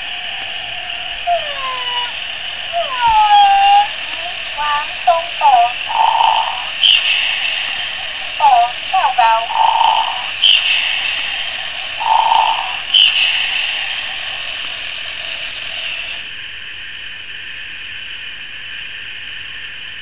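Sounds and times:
high electronic hiss: 0.0s - 20.0s
toy electronic call: 1.3s - 2.2s, 2.8s - 7.1s, 8.4s - 10.6s, 12.0s - 13.2s.

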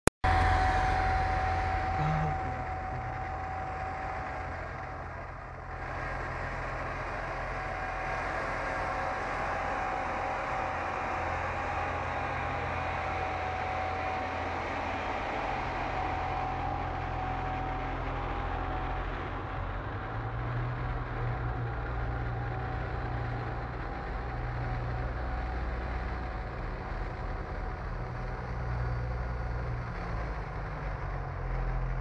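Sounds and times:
diesel engine low hum: 0.2s - 32.0s
steady whine: 0.2s - 32.0s
train rumbling on track: 0.2s - 32.0s.

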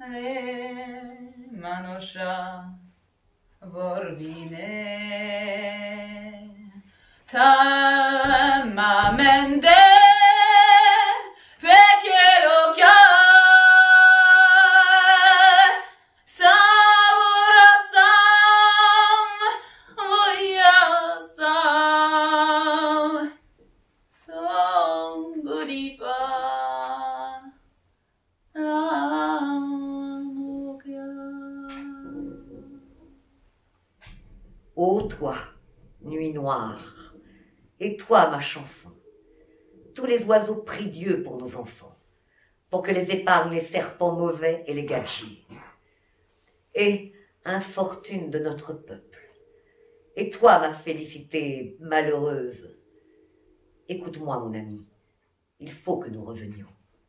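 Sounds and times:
woman singing slow song: 0.0s - 2.9s, 3.6s - 23.4s, 24.2s - 27.6s, 28.5s - 33.2s.

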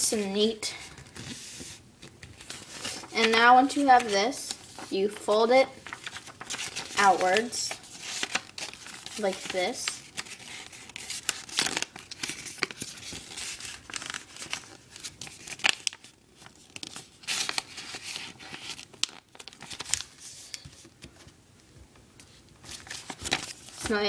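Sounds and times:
paper rustling and crinkling: 0.8s - 21.3s, 22.2s - 24.0s.

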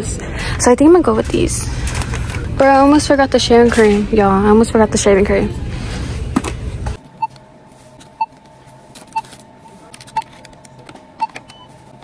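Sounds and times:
self-checkout register beeping: 9.0s - 10.5s, 11.2s - 12.0s.

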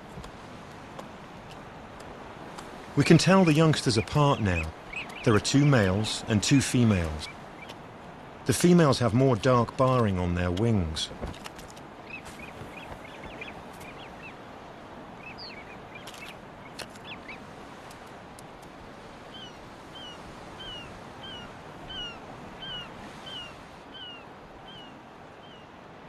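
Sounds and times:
rushing outdoor background: 0.0s - 26.0s
bird calling: 3.0s - 7.8s, 12.0s - 14.4s, 15.1s - 17.5s, 19.2s - 25.7s.

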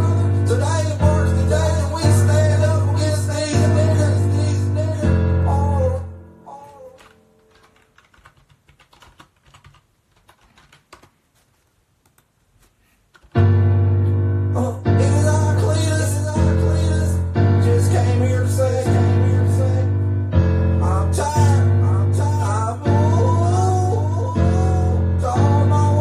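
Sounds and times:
recorded song with heavy bass: 0.0s - 6.7s, 13.4s - 26.0s.

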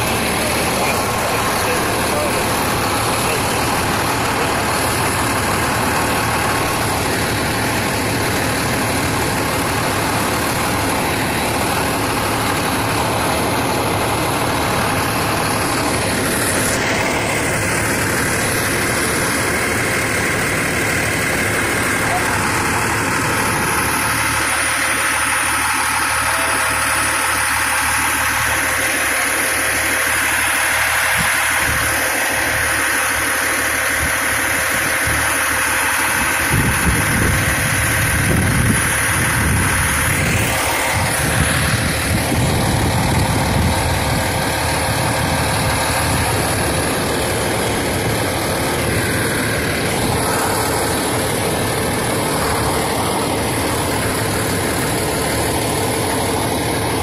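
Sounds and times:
diesel engine idling: 0.0s - 57.0s.

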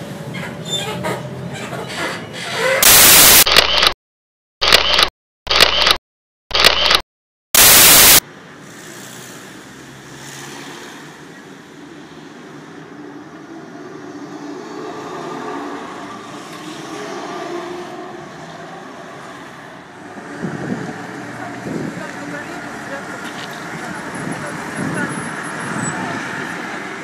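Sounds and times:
loud hiss: 2.8s - 3.4s, 7.6s - 8.2s
trolleybuses driving by: 11.2s - 27.0s.

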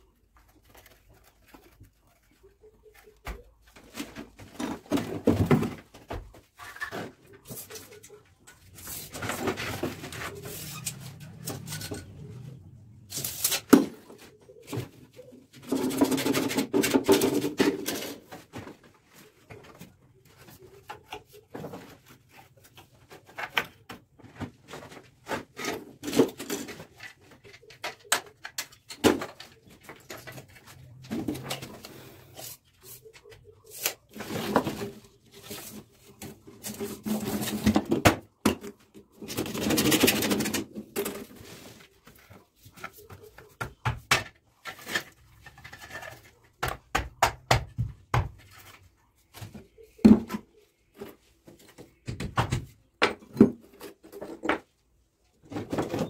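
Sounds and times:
scraping and rustling handling: 0.0s - 43.6s
taps and clicks of hand work: 46.6s - 48.4s.

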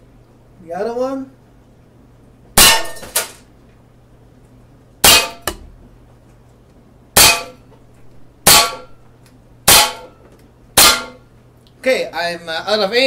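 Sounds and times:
air pistol shots: 7.2s - 7.6s.

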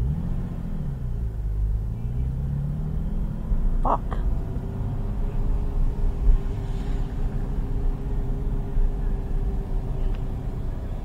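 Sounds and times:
car engine low rumble: 0.0s - 11.0s.

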